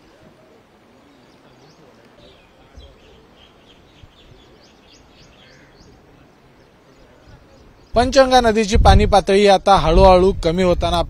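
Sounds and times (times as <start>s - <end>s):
small birds chirping: 0.0s - 8.6s
low outdoor background noise: 0.0s - 11.0s.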